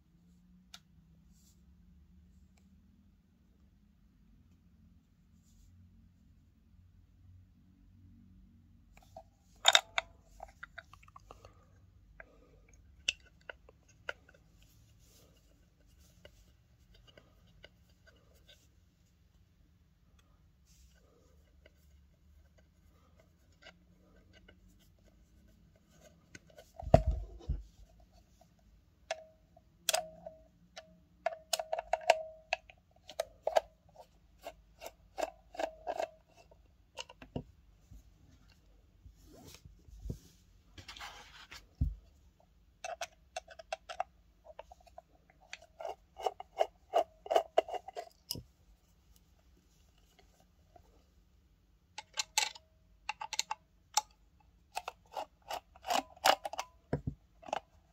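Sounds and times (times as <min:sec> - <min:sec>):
screwdriver clicks and metallic scrapes: 0:09.0 - 0:18.7, 0:21.0 - 0:28.5, 0:29.1 - 0:37.4, 0:42.8 - 0:48.5, 0:52.0 - 0:57.9.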